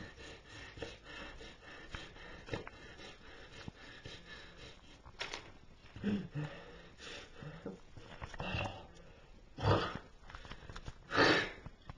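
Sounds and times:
man breathing faintly: 0.0 - 5.2, 5.8 - 9.6.

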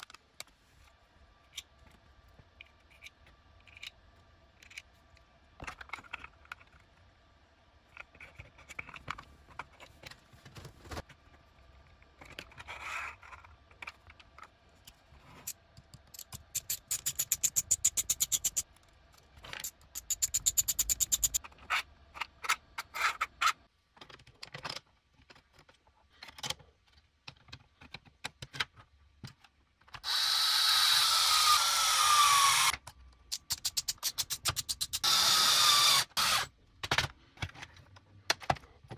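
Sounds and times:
plastic parts clicking together: 2.6 - 7.0, 11.9 - 30.2, 36.2 - 38.9.

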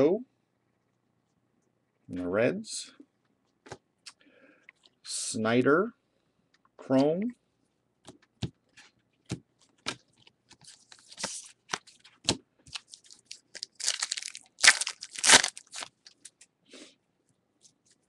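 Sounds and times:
foil wrapper crinkling and tearing: 12.7 - 16.3.

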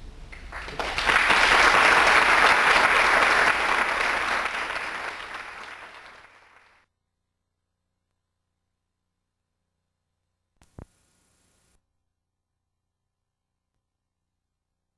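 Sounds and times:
audience applauding: 0.3 - 6.8.

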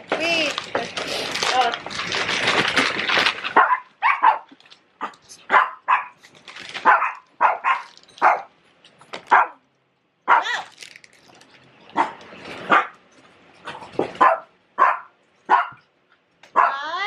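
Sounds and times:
small dogs barking: 3.5 - 6.2, 6.8 - 8.5, 9.3 - 9.6, 10.3 - 10.7, 11.9 - 13.0, 14.2 - 15.9, 16.5 - 16.9.

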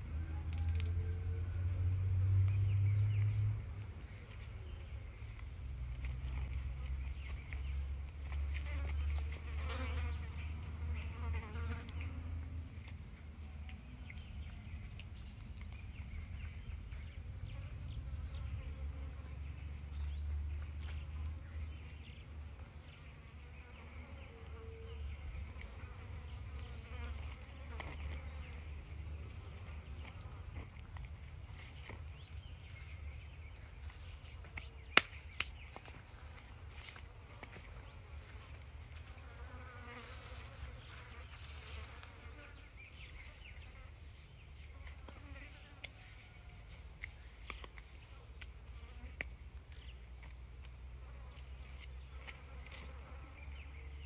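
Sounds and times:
flying insects buzzing: 35.8 - 45.9.

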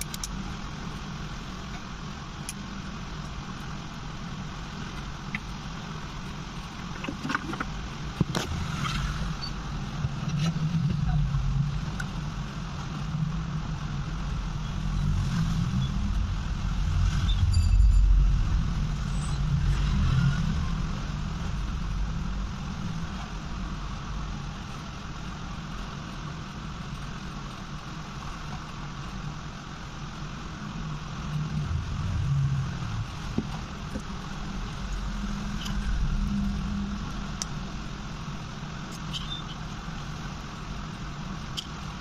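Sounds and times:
low rumble: 8.2 - 24.7, 30.6 - 38.1.

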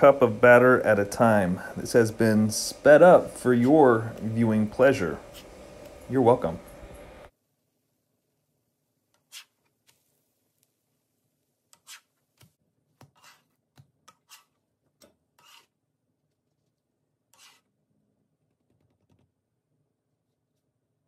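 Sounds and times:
spatula scraping griddle: 0.0 - 5.7, 9.2 - 10.0, 11.7 - 12.2, 13.0 - 15.8, 17.3 - 17.8.

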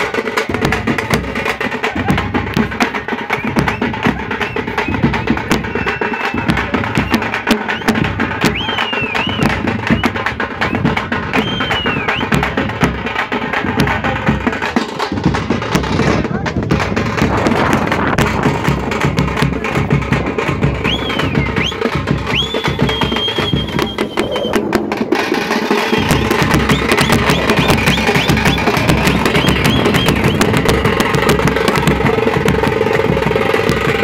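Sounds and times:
loud dance music with drumming: 0.0 - 34.0
shrill whistles: 3.3 - 12.3, 20.8 - 24.6, 25.7 - 30.5.

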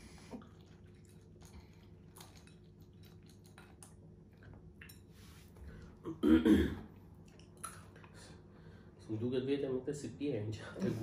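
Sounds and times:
faint chewing of sweets: 0.0 - 6.0, 6.9 - 8.9.

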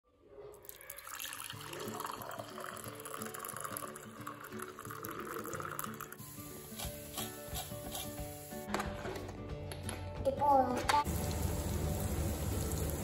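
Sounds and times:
tea pouring into mug: 0.6 - 7.0
background music: 1.0 - 13.0.

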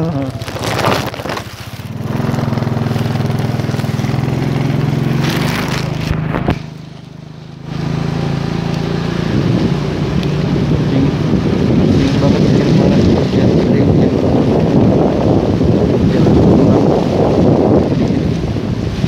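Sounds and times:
heavy rain: 0.0 - 6.8
motorcycle engine running: 0.0 - 19.0
wind: 0.0 - 19.0.

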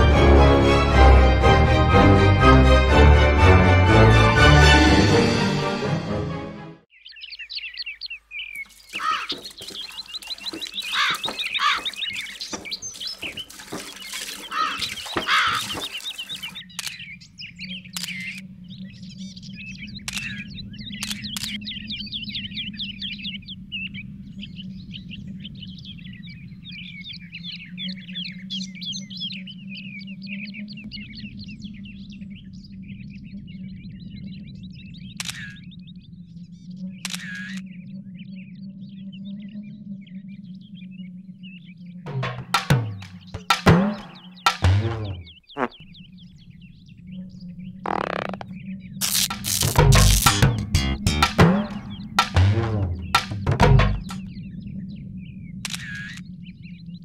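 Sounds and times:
small birds chirping: 6.9 - 57.0
camera shutter clicks: 37.0 - 37.6.

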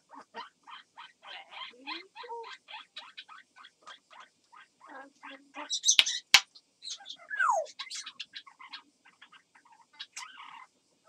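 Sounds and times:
parrot clicks and chirps: 5.8 - 6.5
parrot harsh squawk: 6.9 - 9.2.

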